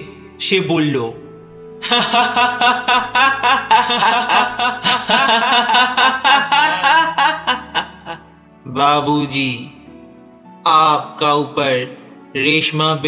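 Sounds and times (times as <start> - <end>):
person guffawing loudly: 1.9 - 8.2.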